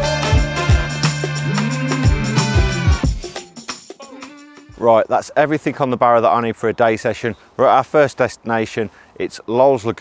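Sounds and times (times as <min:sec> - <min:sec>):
background music with drum beat: 0:00.0 - 0:04.9.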